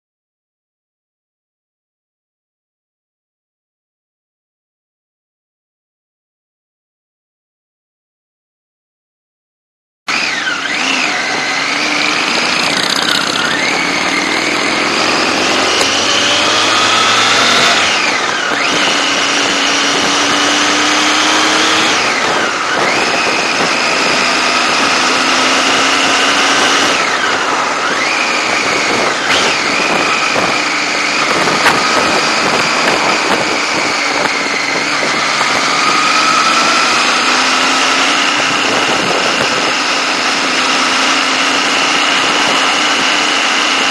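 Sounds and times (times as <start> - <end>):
motorcycle engine accelerating: 10.1 - 43.9
wind noise: 10.8 - 43.9.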